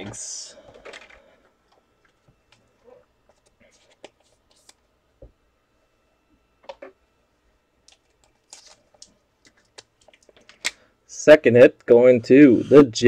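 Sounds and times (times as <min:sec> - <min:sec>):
trading cards clicking and rustling: 0:03.3 - 0:04.8, 0:07.8 - 0:10.8.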